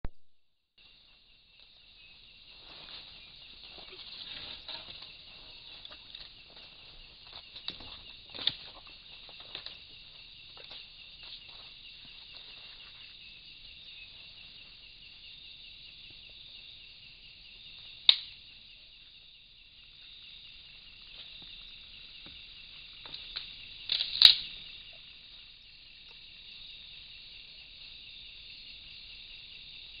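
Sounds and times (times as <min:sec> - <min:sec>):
night insects chorus: 0:00.8 - 0:30.0
leaves and branches rustling: 0:01.1 - 0:14.8
sharp branch cracks: 0:18.1 - 0:18.4, 0:23.1 - 0:24.6.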